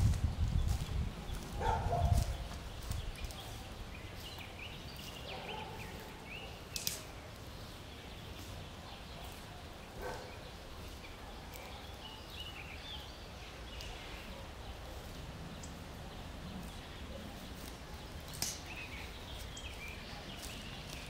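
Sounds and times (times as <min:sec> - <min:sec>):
low wind rumble: 0:00.0 - 0:05.0
small birds chirping: 0:00.0 - 0:21.0.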